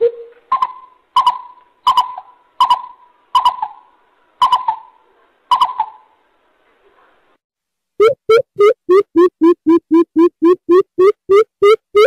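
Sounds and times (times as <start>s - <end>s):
bird hooting call: 0.0s - 6.2s.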